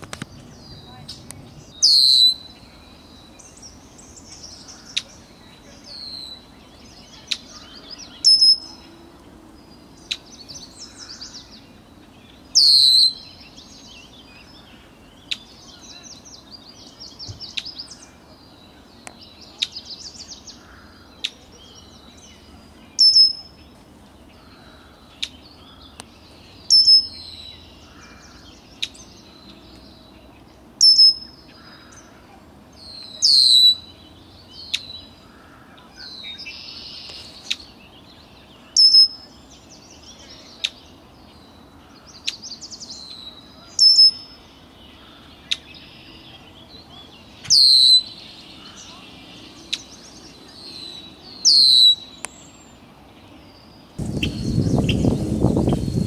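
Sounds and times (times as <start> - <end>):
bird calling high-pitched: 0.6 - 3.7, 4.3 - 8.9, 12.5 - 13.6, 23.0 - 23.6, 26.6 - 29.0, 30.8 - 32.2, 32.9 - 34.0, 38.7 - 39.3, 43.6 - 44.4, 47.4 - 49.0, 51.0 - 52.2.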